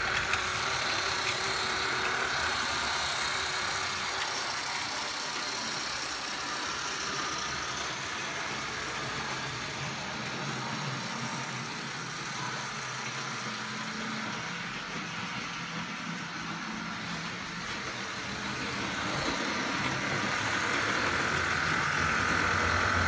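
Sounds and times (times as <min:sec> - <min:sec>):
model train motors humming: 0:00.0 - 0:23.0
wheels rolling over track: 0:00.0 - 0:23.0.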